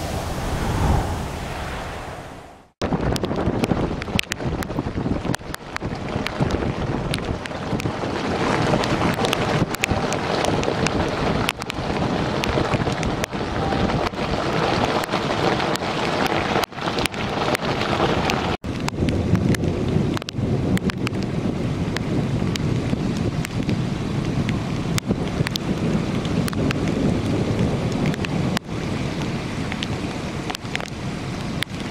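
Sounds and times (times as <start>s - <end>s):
wind buffeting microphone: 0.0s - 31.9s
hailstones clicking: 2.8s - 21.3s
hail and rain pouring: 2.8s - 21.4s.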